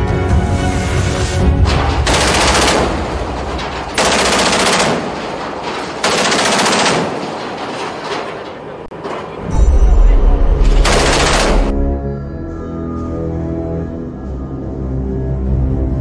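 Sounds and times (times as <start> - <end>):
machine-gun bursts: 1.9 - 7.8, 10.7 - 11.7.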